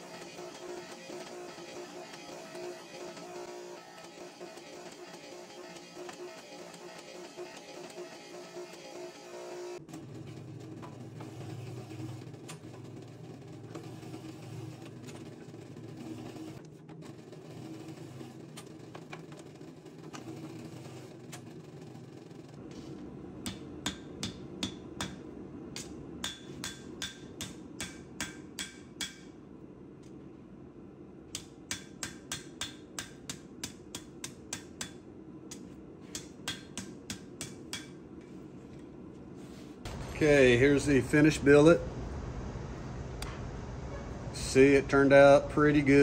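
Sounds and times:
rolling mill humming: 0.0 - 46.0
hammer striking steel on anvil: 23.4 - 25.2, 25.8 - 29.4, 31.3 - 38.0.

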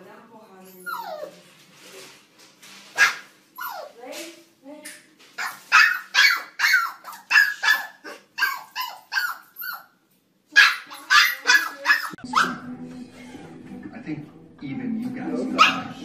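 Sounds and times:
puppy barking rapidly: 3.0 - 3.9, 5.4 - 10.0, 10.6 - 12.6, 15.6 - 16.0.

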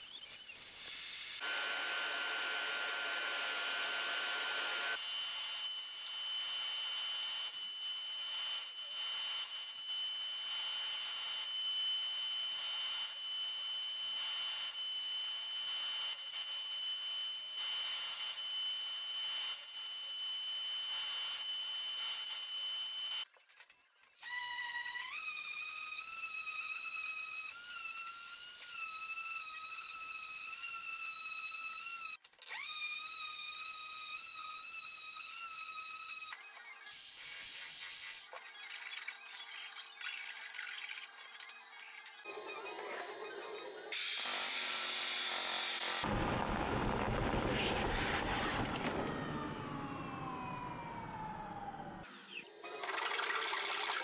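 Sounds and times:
orbital sander whine: 0.0 - 16.6
router high whine: 0.0 - 23.2, 48.1 - 52.9.

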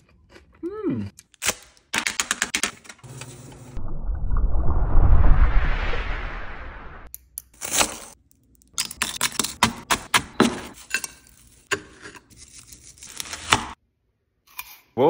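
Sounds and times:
knife cutting brittle candy: 8.7 - 13.8.

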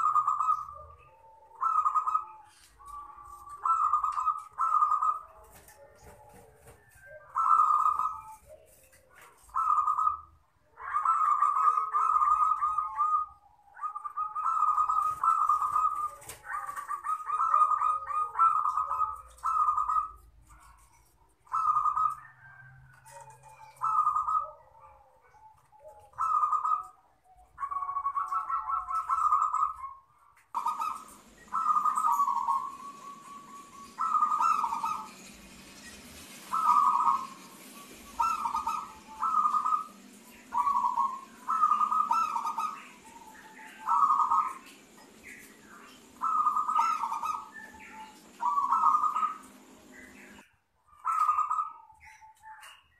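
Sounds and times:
dove cooing and trilling: 0.0 - 52.9
steady hiss: 31.1 - 50.4.

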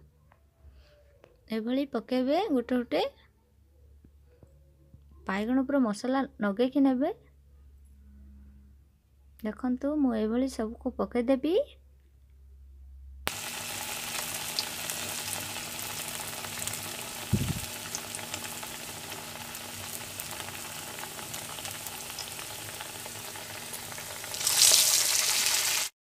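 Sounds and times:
slices frying in hot oil: 13.3 - 26.0.

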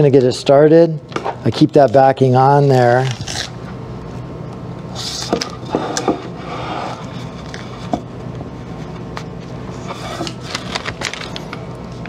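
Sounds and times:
steady low hum: 0.0 - 12.0
tape rustling: 8.9 - 12.0.

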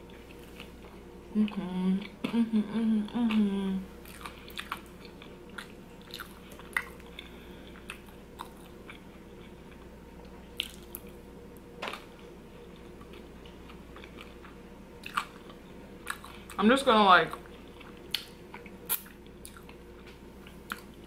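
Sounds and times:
person chewing food: 0.0 - 2.4, 3.2 - 11.2, 11.8 - 16.6, 17.3 - 21.0
faint steady hum: 0.0 - 21.0
wet mouth clicks and smacks: 18.1 - 19.6.

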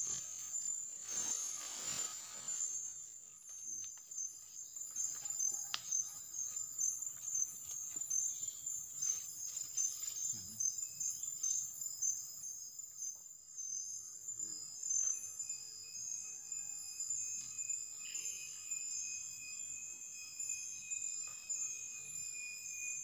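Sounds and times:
faint rustling in undergrowth: 0.0 - 10.5
insects chirping: 0.0 - 23.0.

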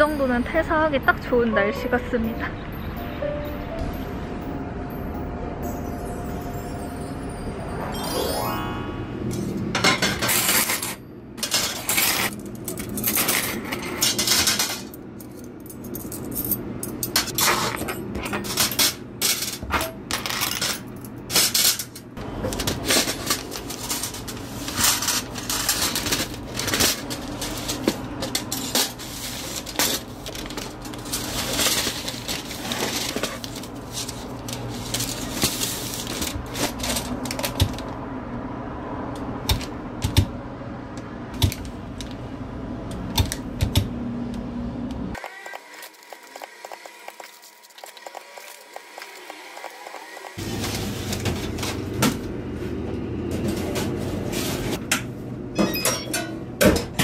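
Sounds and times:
metal instruments clinking: 9.4 - 37.4.

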